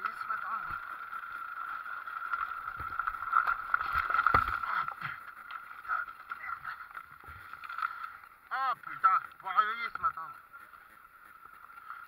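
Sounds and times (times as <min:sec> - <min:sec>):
bike and rider falling into leaves: 0:00.0 - 0:08.2.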